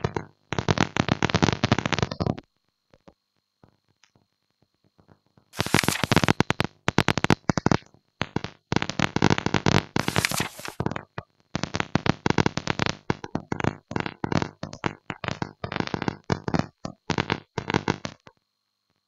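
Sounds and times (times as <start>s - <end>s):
paper page-turn crackling: 5.6s - 6.4s, 10.0s - 10.8s.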